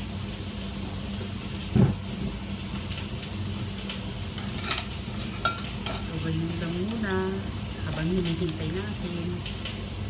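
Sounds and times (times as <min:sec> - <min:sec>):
curry bubbling in a pot: 0:00.0 - 0:10.0
loud dull thump: 0:01.7 - 0:02.0.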